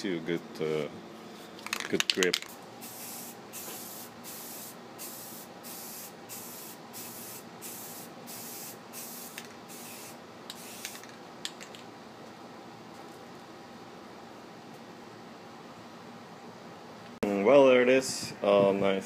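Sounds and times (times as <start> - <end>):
aerosol can spraying bursts: 2.8 - 11.0.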